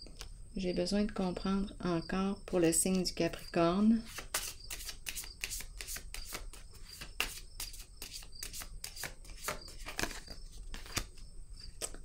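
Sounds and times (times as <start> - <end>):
cards being shuffled: 4.1 - 12.0.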